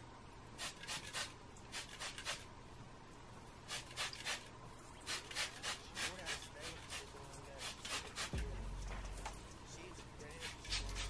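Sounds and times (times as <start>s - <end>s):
spray bottle hissing: 0.6s - 2.4s, 3.7s - 8.4s.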